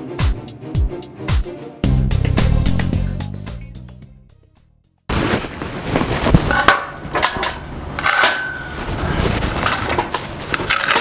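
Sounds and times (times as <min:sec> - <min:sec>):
metal clanks and clinks: 0:06.5 - 0:08.8.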